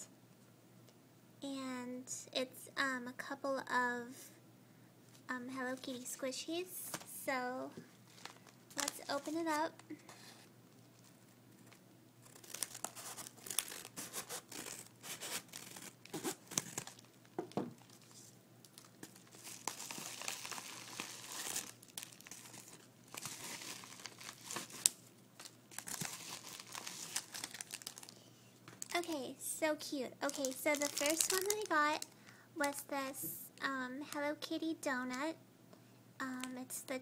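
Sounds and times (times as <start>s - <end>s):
wrapping crinkling and tearing: 7.9s - 29.1s, 30.2s - 32.8s.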